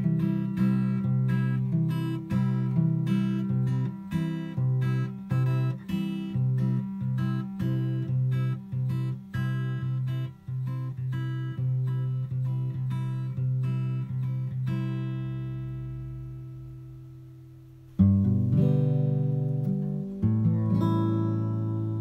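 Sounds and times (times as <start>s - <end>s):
acoustic guitar strumming: 0.0s - 22.0s.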